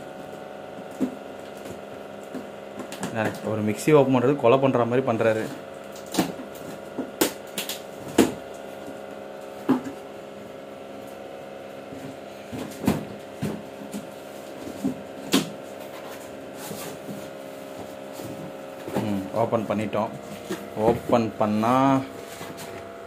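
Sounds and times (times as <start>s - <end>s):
steady background hum: 0.0s - 23.0s.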